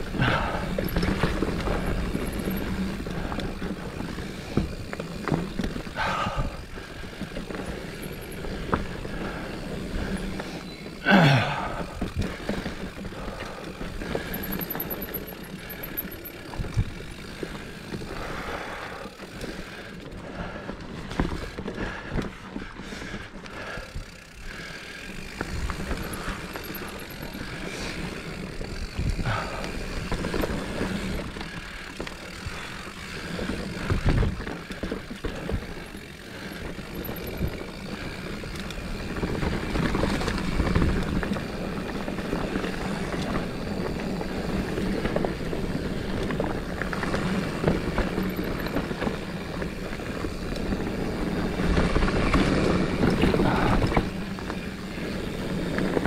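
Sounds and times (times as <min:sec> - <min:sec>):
bike chain and frame rattling: 0:00.0 - 0:56.0
bike tyres rolling over rock: 0:00.0 - 0:56.0
wheels knocking on rocks: 0:00.0 - 0:56.0.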